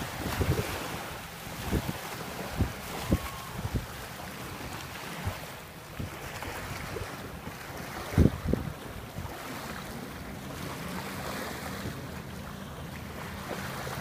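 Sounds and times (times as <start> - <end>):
wind noise on microphone: 0.0 - 9.5
jet ski engine hum: 0.0 - 14.0
small waves lapping on sand: 0.0 - 14.0.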